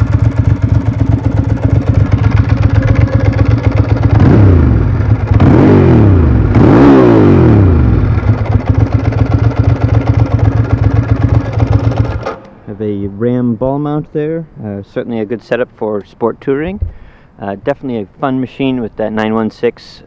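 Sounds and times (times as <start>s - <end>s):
motorcycle engine idling and revving: 0.0s - 12.6s.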